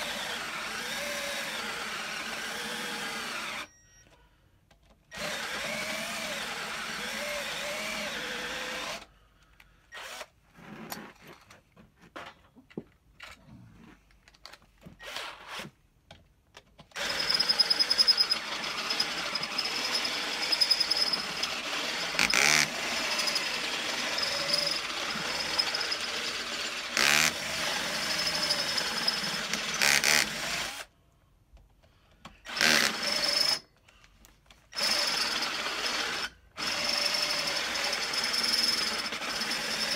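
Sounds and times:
cordless drill boring into metal: 0.0 - 3.7, 5.1 - 9.1, 9.9 - 10.3, 16.9 - 30.9, 32.5 - 33.7, 34.7 - 39.9.

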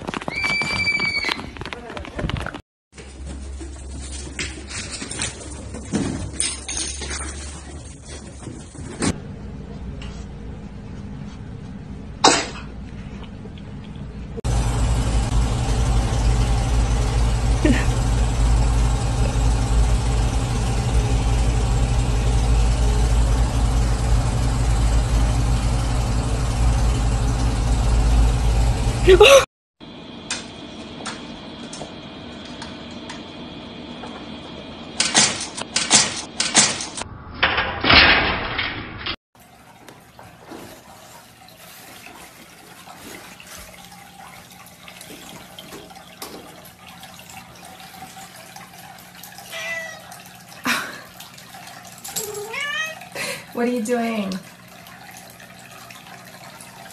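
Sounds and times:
room hum: 3.0 - 56.9
cat sneezing: 12.2 - 12.7
noisy clatter: 35.0 - 39.2.

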